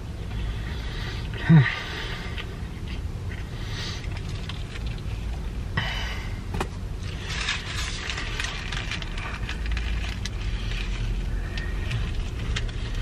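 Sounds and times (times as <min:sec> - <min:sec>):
car interior hum: 0:00.0 - 0:13.0
chewing with crackles: 0:02.3 - 0:05.5, 0:07.0 - 0:13.0.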